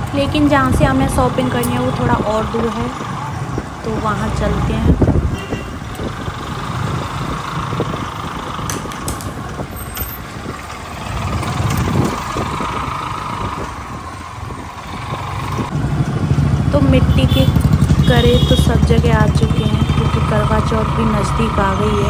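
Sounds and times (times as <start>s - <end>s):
street traffic: 0.0s - 22.0s
motorcycle engine running: 4.8s - 22.0s.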